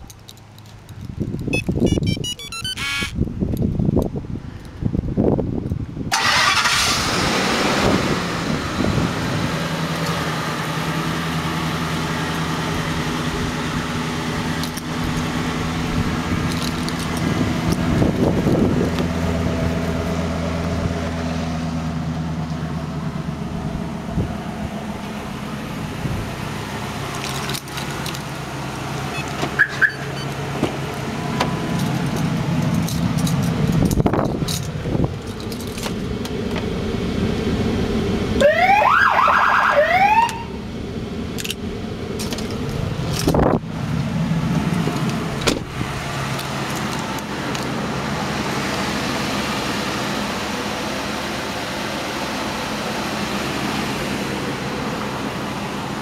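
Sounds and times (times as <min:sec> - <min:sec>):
car engine starting and idling: 0:05.8 - 0:56.0.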